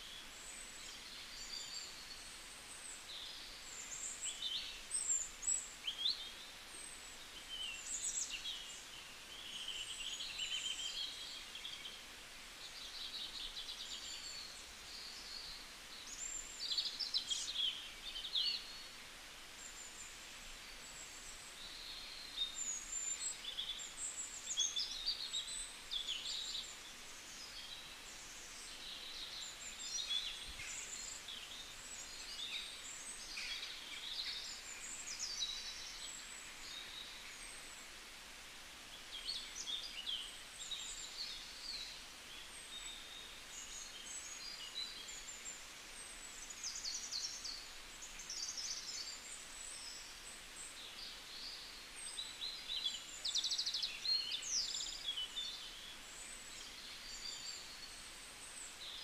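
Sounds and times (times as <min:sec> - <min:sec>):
faint background hiss: 0:00.0 - 0:59.0
small birds chirping: 0:00.0 - 0:59.0.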